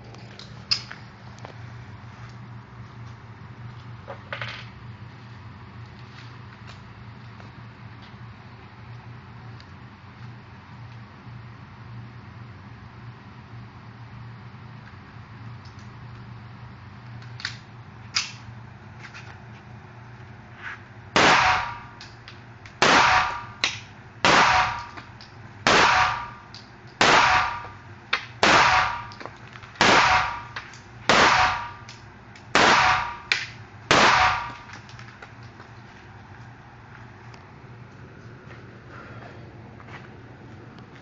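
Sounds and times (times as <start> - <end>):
pistol shots indoors: 21.2 - 22.0, 22.8 - 25.0, 25.7 - 26.4, 27.0 - 27.8, 28.4 - 29.2, 29.8 - 31.9, 32.5 - 33.3, 33.9 - 34.7.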